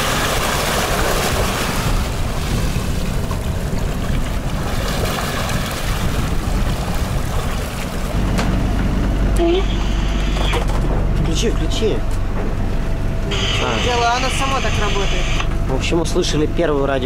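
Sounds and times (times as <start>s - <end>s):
breaking waves rushing: 0.0s - 8.2s
wind buffeting microphone: 0.0s - 9.4s
boat engine low drone: 0.0s - 17.0s.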